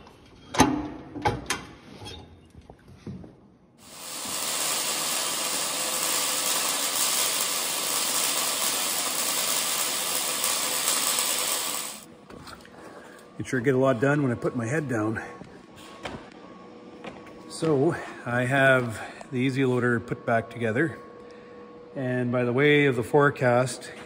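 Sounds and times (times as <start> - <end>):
arc welding hiss: 3.8 - 12.1.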